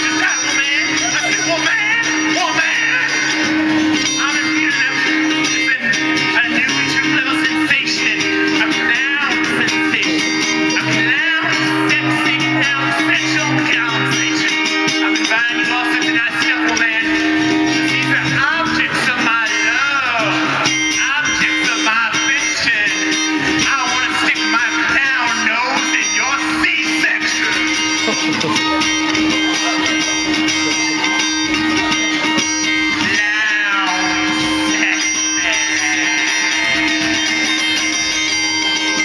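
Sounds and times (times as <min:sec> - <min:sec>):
amplified guitar strumming: 0:00.0 - 0:39.0
person singing: 0:00.0 - 0:39.0.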